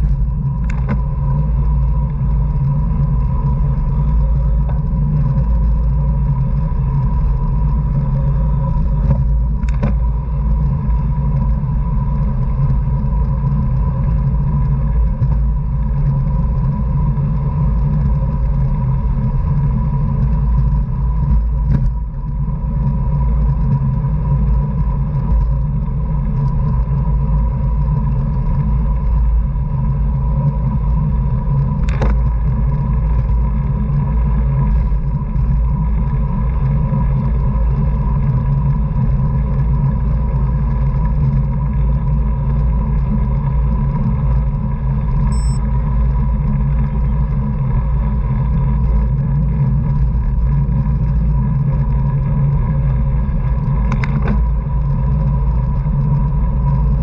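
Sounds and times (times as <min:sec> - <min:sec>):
wind and road rumble: 0:00.0 - 0:57.0
thin steady tone: 0:45.2 - 0:45.7.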